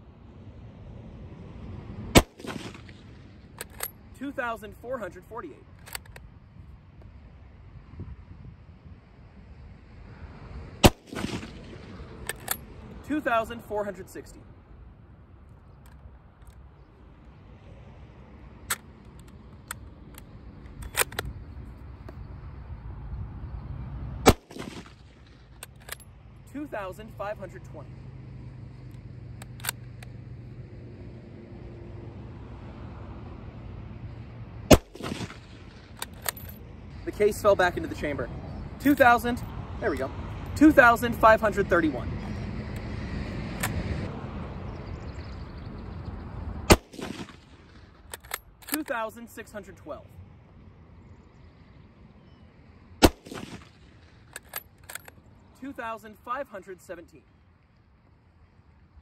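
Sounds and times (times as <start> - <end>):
loud gunshot with ringing echo: 2.2 - 3.1, 10.8 - 12.0, 24.2 - 25.2, 34.7 - 35.8, 46.7 - 47.7, 53.0 - 53.8
rifle bolt click: 3.6 - 3.9, 5.8 - 6.3, 18.7 - 21.3, 34.7 - 36.5, 48.0 - 48.9, 54.3 - 55.1
rifle bolt metallic clicks: 3.6 - 4.0, 5.6 - 6.3, 12.2 - 12.7, 18.6 - 21.4, 24.3 - 26.1, 28.9 - 30.1, 34.7 - 36.6, 43.6 - 43.8, 46.7 - 49.0, 53.0 - 55.2.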